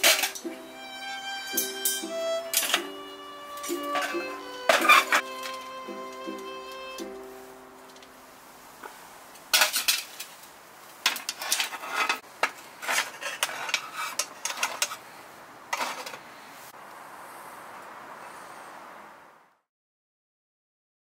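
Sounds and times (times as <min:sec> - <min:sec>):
metal lid handled: 0:03.7 - 0:05.6.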